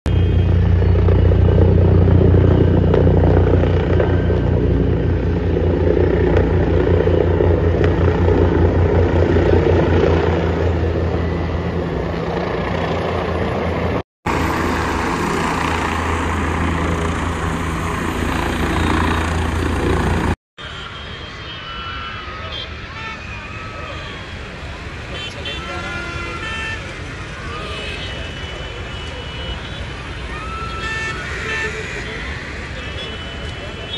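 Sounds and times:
helicopter rotor beating: 0:00.1 - 0:20.4.

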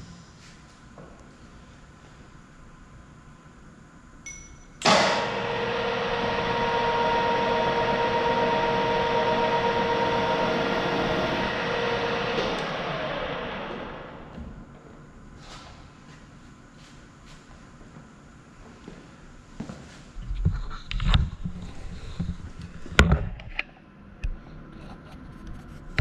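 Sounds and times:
drill press motor whining: 0:04.8 - 0:14.6.

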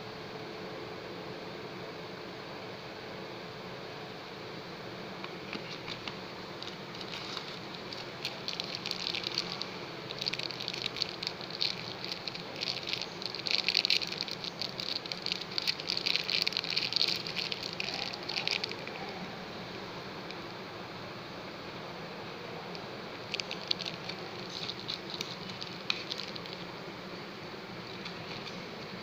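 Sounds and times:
plastic pouch crinkling: 0:05.6 - 0:19.2, 0:23.1 - 0:26.8, 0:27.8 - 0:28.7.

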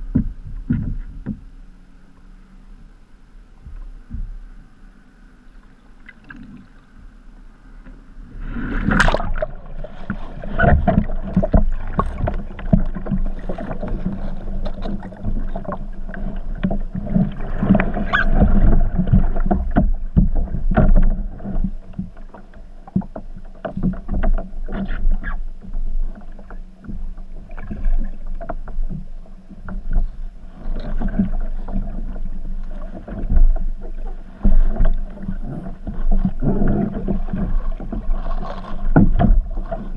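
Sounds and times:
knocks on hull underwater: 0:00.0 - 0:01.5, 0:10.5 - 0:22.2, 0:38.8 - 0:39.9
kayak capsizing splash: 0:08.1 - 0:39.9
churning underwater bubbling: 0:08.5 - 0:22.9, 0:29.8 - 0:39.9.

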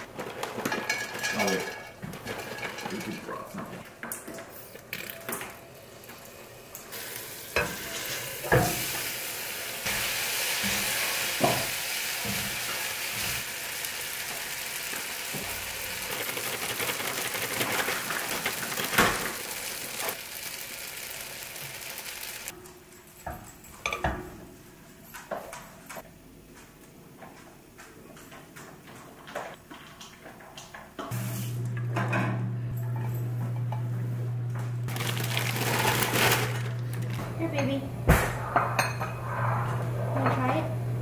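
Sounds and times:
food sizzling in a pot: 0:05.6 - 0:22.5.

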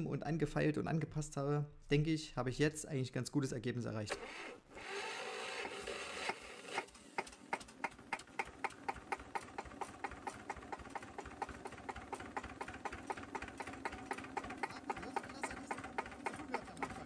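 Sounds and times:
diesel engine idling and knocking: 0:07.1 - 0:17.0.

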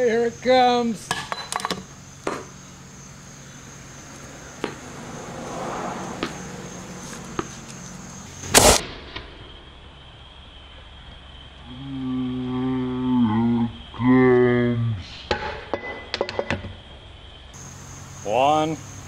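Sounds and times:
loud thump: 0:04.6 - 0:04.9, 0:06.1 - 0:06.6.

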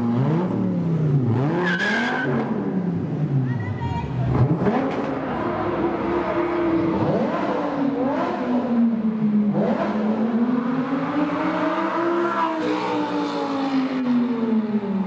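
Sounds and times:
car engine revving: 0:00.0 - 0:03.3, 0:04.3 - 0:14.6
car engine accelerating away: 0:04.3 - 0:08.8.

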